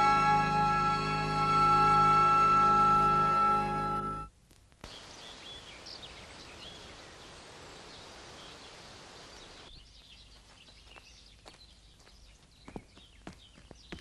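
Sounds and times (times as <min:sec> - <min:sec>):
steady hiss: 0:04.4 - 0:09.7
small birds chirping: 0:04.8 - 0:14.0.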